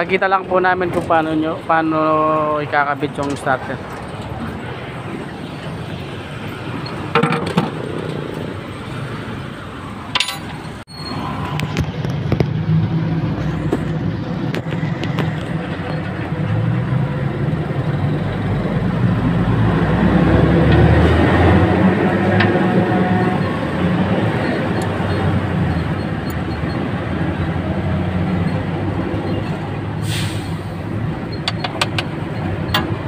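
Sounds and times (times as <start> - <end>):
vehicle engine rumbling: 0.0 - 33.0
sharp clicks and clinks: 10.1 - 11.8, 31.4 - 33.0.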